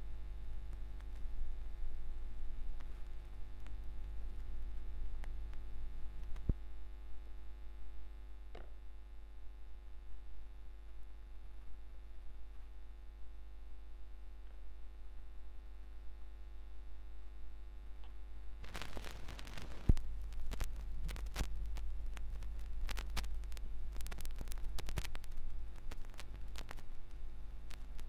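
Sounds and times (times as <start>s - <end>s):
vinyl record crackle: 0.0s - 7.5s, 18.0s - 28.0s
mains hum: 0.0s - 28.0s.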